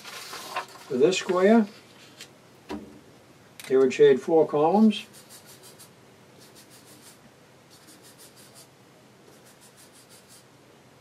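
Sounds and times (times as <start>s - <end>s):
marker scribbling on paper: 5.0s - 8.7s, 9.3s - 10.5s.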